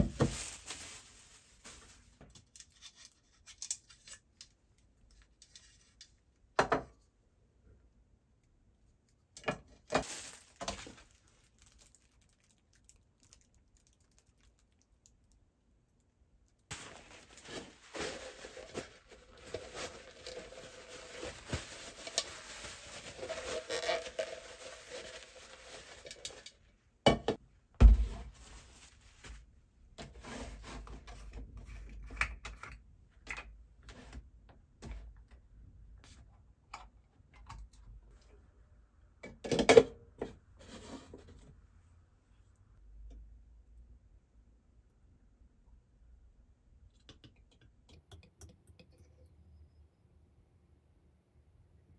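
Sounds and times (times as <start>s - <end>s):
plastic wrap crinkling: 0.0s - 4.2s, 10.0s - 15.3s, 16.7s - 26.7s.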